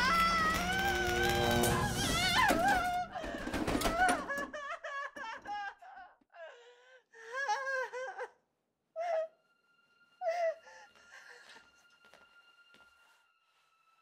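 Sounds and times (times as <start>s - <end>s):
woman screaming: 0.0s - 3.2s
woman sobbing: 2.0s - 9.4s.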